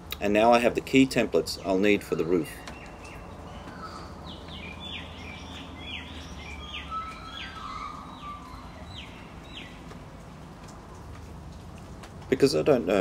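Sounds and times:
bird calling high notes: 0:02.0 - 0:09.9.

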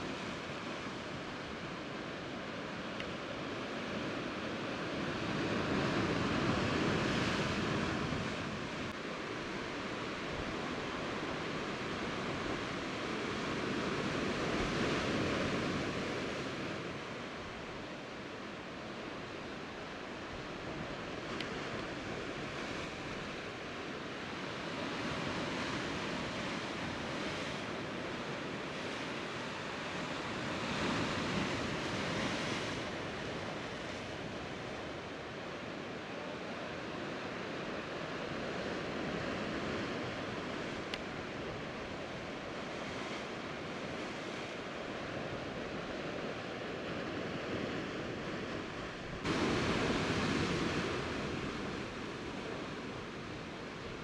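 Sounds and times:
surf washing against rocks: 0:38.3 - 0:54.0.

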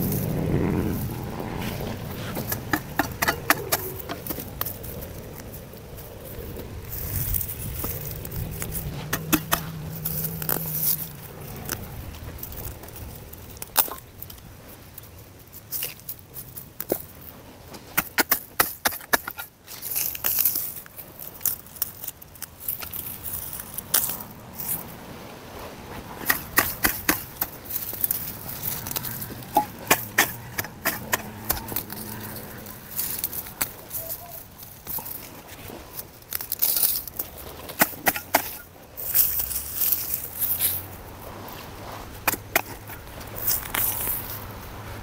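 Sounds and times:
grass rustling: 0:00.0 - 0:45.0
hoe striking dry soil: 0:07.0 - 0:11.0, 0:26.1 - 0:32.1, 0:37.5 - 0:39.6, 0:42.2 - 0:44.0.

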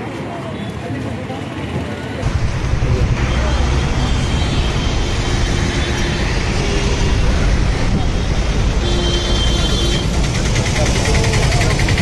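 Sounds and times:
crowd voices: 0:00.0 - 0:08.8
traffic rumble: 0:00.0 - 0:12.0.

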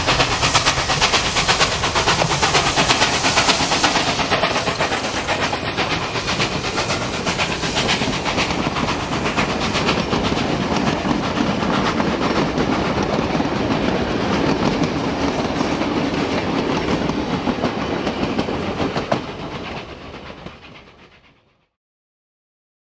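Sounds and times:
train wheels rumbling on rail: 0:00.0 - 0:21.6.

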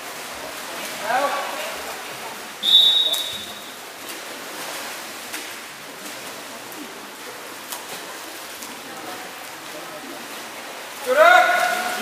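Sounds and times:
indoor pool hall hiss: 0:00.0 - 0:12.0
referee's whistle blast: 0:02.6 - 0:03.7.

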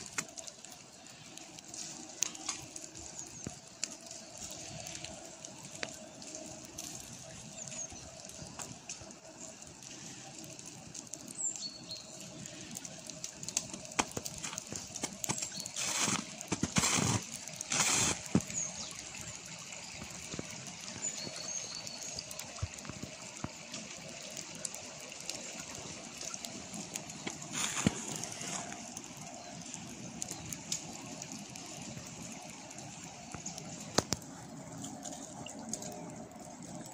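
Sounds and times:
brook trickling: 0:00.0 - 0:36.9
birds chirping: 0:11.2 - 0:12.8
rustling bursts: 0:14.1 - 0:18.5.

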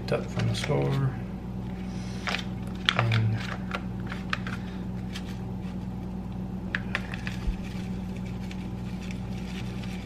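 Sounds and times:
low hum: 0:00.0 - 0:10.0
paper packet crinkling: 0:06.8 - 0:10.0.

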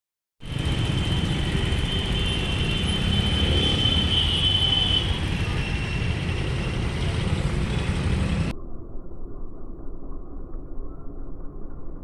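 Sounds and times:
city street rumble: 0:00.4 - 0:08.5.

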